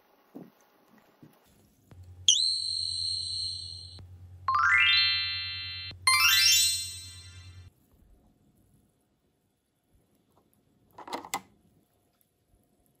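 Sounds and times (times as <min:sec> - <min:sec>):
low steady buzz: 0:01.9 - 0:04.7
high electronic tone dipping: 0:02.3 - 0:07.7
rising chime-like sweeps: 0:04.5 - 0:07.7.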